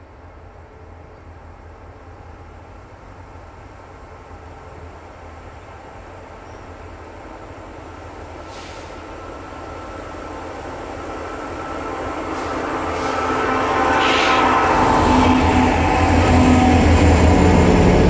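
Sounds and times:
diesel freight train rumbling: 0.0 - 18.0
brief hiss: 8.4 - 9.1, 12.3 - 14.8.

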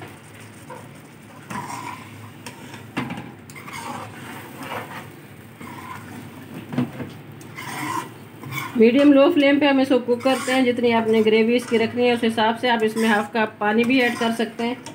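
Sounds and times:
curry sizzling: 0.0 - 14.9
metal ladle scraping a pot: 0.7 - 2.8, 3.5 - 6.4, 7.4 - 9.2, 10.1 - 14.9.

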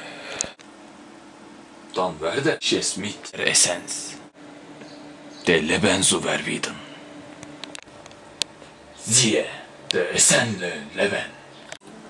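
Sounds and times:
faint low hum: 0.0 - 12.0
man speaking: 2.0 - 4.2, 5.4 - 7.0, 9.0 - 11.4.

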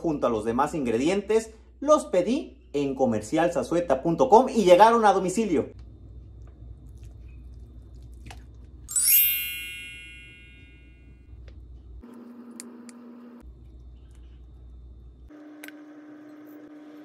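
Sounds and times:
bright bell-like ding: 8.9 - 11.0.

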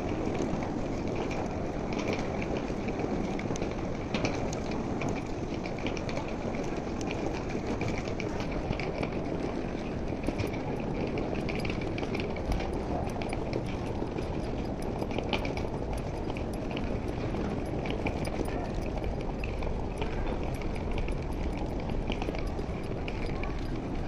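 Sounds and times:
distant voices: 12.2 - 24.0.

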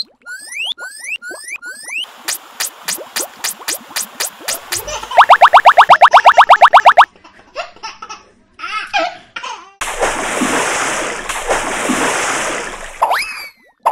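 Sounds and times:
quick rising blips: 0.0 - 7.1
child-like giggling: 4.7 - 5.2.

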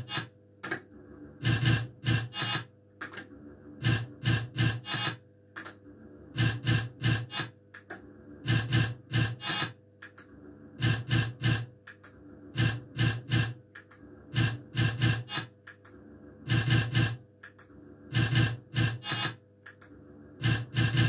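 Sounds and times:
steady electrical hum: 0.0 - 21.0.

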